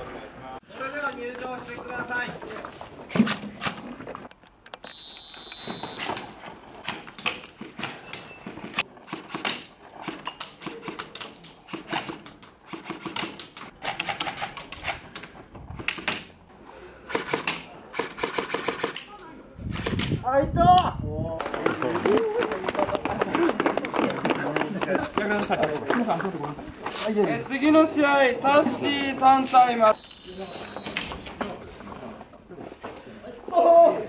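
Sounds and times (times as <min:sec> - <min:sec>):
short high-pitched beep: 0:04.8 - 0:06.1, 0:29.9 - 0:31.1
airsoft guns firing: 0:09.0 - 0:15.0, 0:17.1 - 0:19.1.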